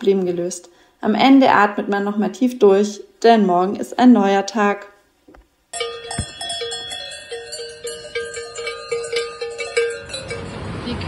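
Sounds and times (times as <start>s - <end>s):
cowbells clanking: 5.7s - 11.0s.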